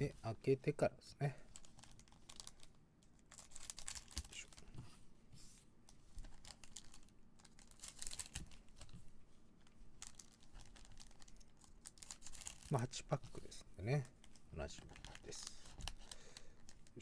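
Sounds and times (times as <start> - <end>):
foil crinkling: 1.6 - 2.7, 3.3 - 4.6, 6.3 - 8.9, 10.0 - 13.2.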